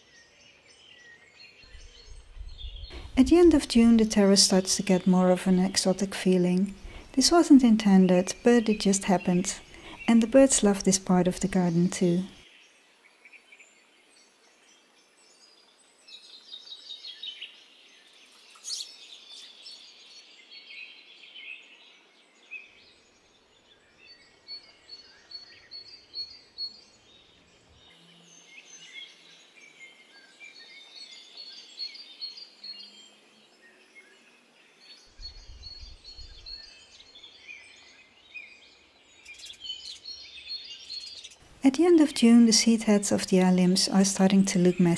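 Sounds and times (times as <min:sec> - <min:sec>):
small birds chirping and singing: 0:00.0 - 0:44.9.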